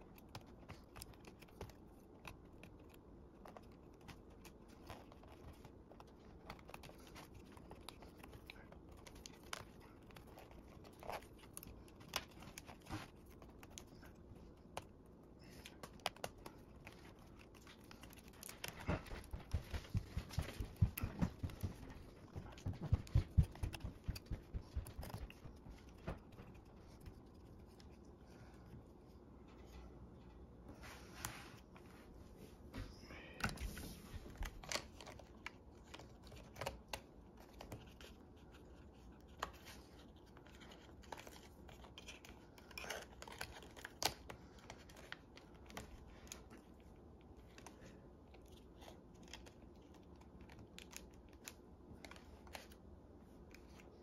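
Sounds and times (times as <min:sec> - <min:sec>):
small clicks taps and scrapes: 0:00.0 - 0:28.1.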